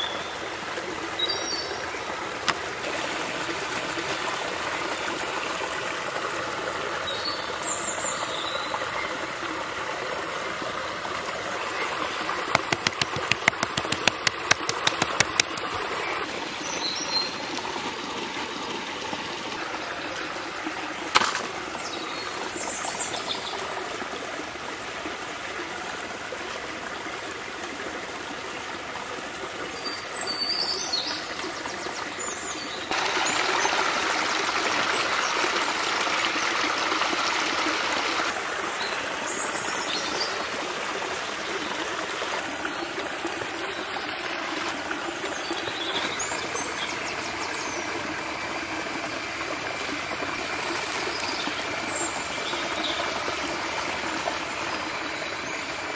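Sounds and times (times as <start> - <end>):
stream water rushing: 0.0 - 31.9, 32.6 - 55.9
thin high steady tone: 46.0 - 55.9.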